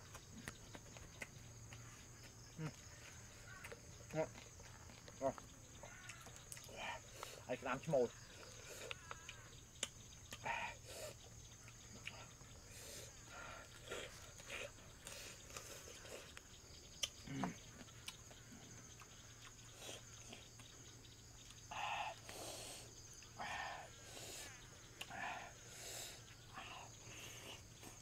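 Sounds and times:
chewing and lip-smacking: 0.0s - 5.2s, 5.8s - 7.4s, 8.5s - 10.4s, 11.2s - 12.6s, 13.7s - 20.8s
insect chorus: 0.0s - 28.0s.

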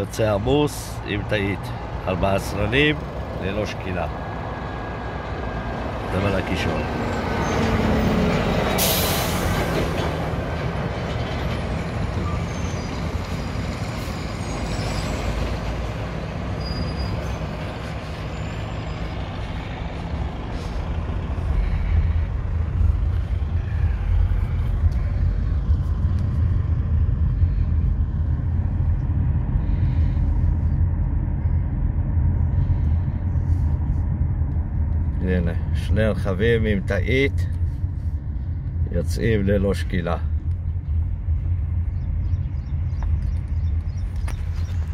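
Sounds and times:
heavy trucks running: 0.0s - 44.9s
air brake hiss: 8.8s - 9.6s
car rumble from inside cabin: 16.8s - 44.9s.

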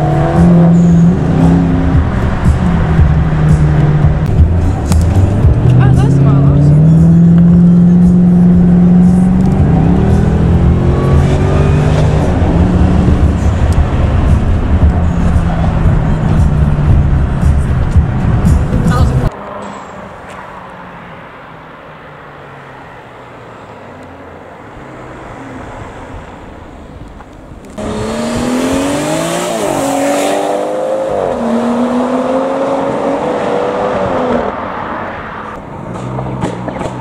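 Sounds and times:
car engine revving: 0.0s - 20.0s, 24.2s - 37.0s.

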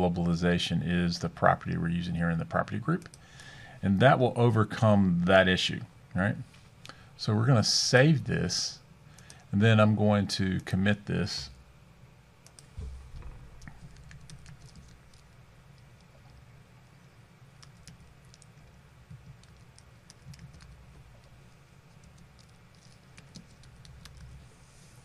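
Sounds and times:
typing on a computer keyboard: 13.5s - 16.4s, 17.6s - 24.4s.

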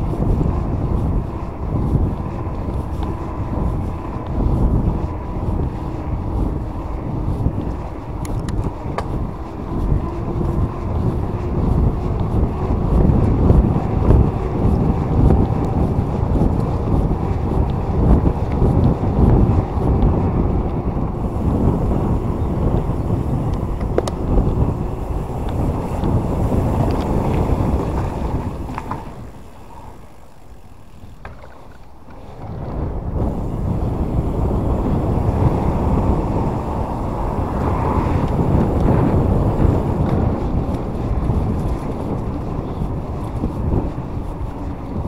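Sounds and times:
wind buffeting microphone: 0.0s - 45.0s
faint clicks: 7.6s - 9.2s.

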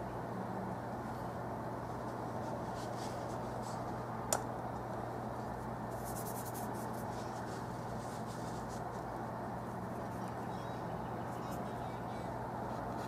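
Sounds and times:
steady low hum and hiss: 0.0s - 13.0s
paintbrush scratching on canvas: 5.9s - 9.1s.

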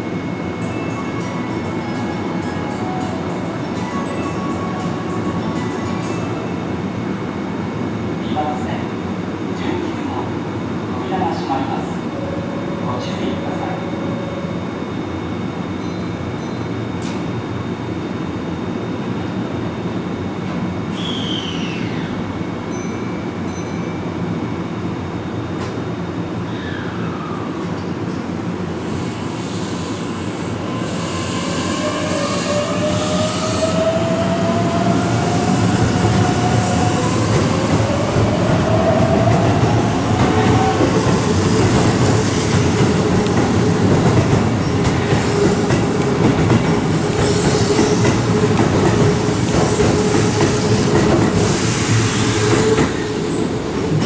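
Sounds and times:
wheels rumbling on rail: 30.3s - 54.0s.

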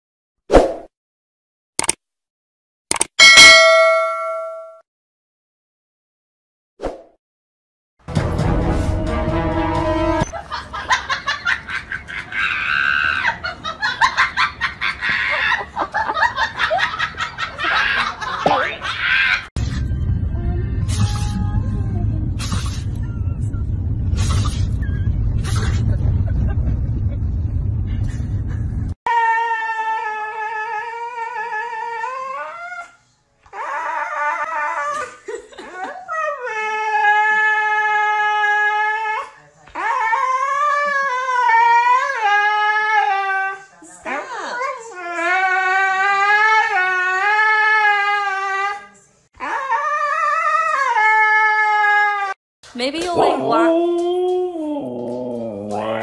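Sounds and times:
husky howling: 53.2s - 56.0s.

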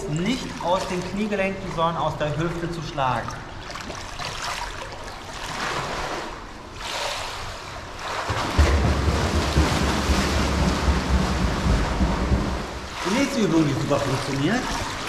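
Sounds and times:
flutter kick splashing water: 0.0s - 2.5s, 3.2s - 15.0s
steady low rumble: 8.3s - 14.7s.

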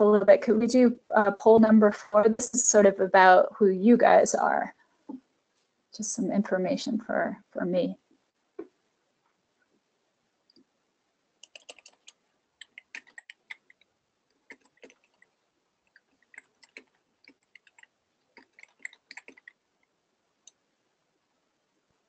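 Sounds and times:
keyboard and mouse clicks: 11.4s - 13.8s, 14.4s - 15.3s, 15.9s - 19.6s.

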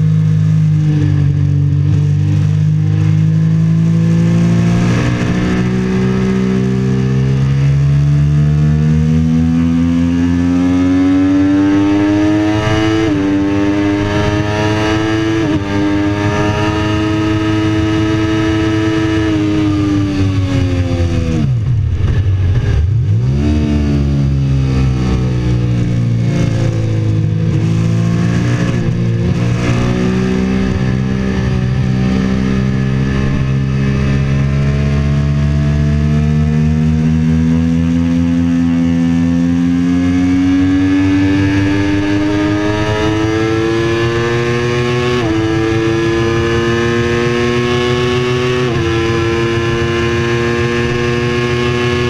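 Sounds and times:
motorcycle engine revving: 0.0s - 52.0s.

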